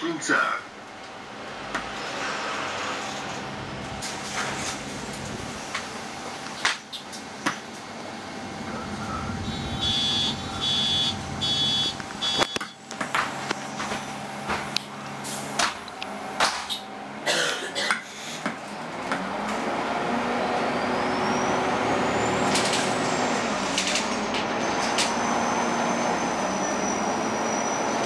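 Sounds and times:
bus motor hum: 0.0 - 28.0
short high electronic beeps: 9.0 - 12.8.

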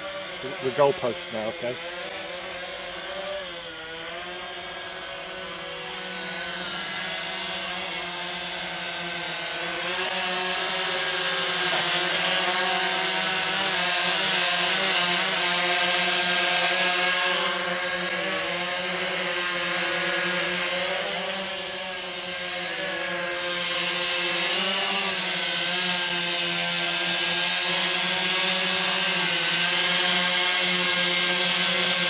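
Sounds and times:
drone propellers whining: 0.0 - 32.0.

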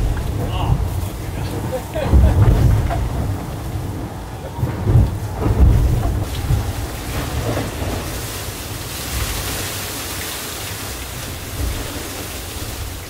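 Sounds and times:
hull rumbling through sea: 0.0 - 13.0.

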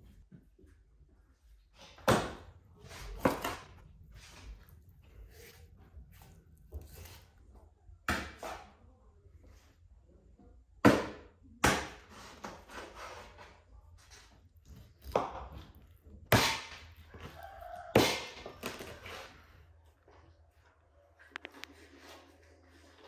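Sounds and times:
quiet handling sounds: 18.8 - 23.0.

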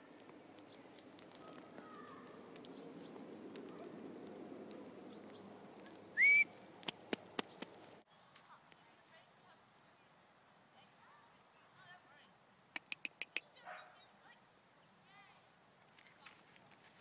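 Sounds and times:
small birds chirping: 0.0 - 10.2, 10.8 - 15.4
sharp clicks: 0.2 - 8.0, 12.7 - 13.4
person whistling: 6.2 - 6.5.

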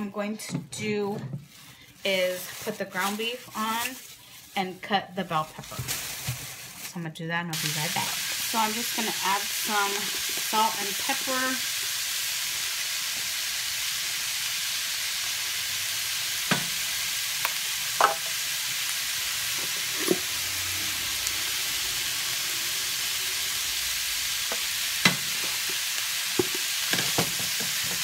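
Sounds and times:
ground beef sizzling: 7.5 - 28.0.

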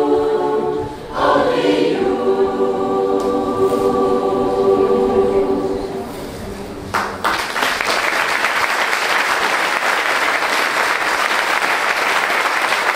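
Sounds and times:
choir holding chord: 0.0 - 6.5
audience applause: 6.9 - 12.9.

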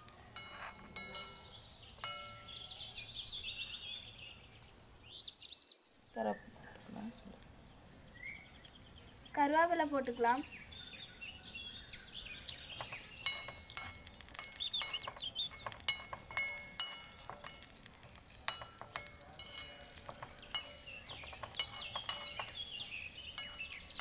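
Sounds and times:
light metallic clinks: 0.0 - 3.0, 12.2 - 24.0
faint bird chirps: 0.0 - 24.0.

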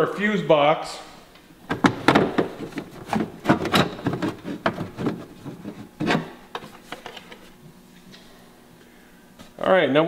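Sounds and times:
plastic cover clicking and knocking: 1.7 - 7.4.

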